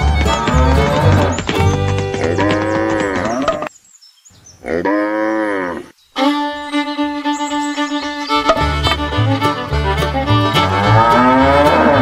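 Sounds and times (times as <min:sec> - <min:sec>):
music with held notes: 0:00.0 - 0:02.2, 0:06.2 - 0:12.0
cow mooing: 0:10.6 - 0:12.0.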